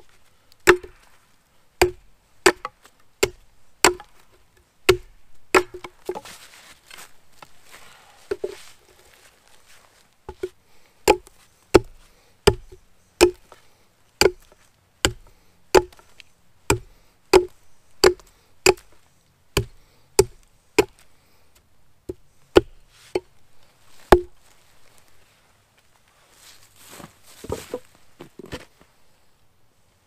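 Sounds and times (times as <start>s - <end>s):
hatchet chopping wood: 0.6s - 1.1s, 1.8s - 6.2s, 10.3s - 13.6s, 14.2s - 19.0s, 19.6s - 21.0s, 22.1s - 23.3s, 24.1s - 24.4s.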